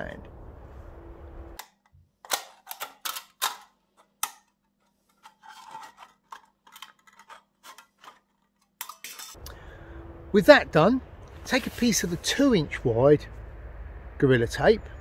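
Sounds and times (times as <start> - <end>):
metal crinkling: 2.2 - 9.4.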